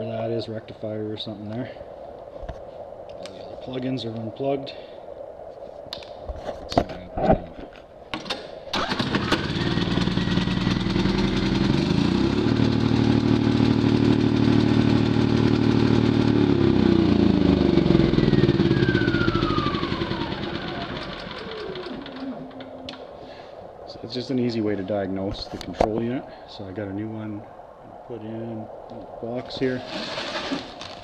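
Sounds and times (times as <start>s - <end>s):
falling whine: 8.7s - 25.2s
generator engine running: 8.8s - 23.0s.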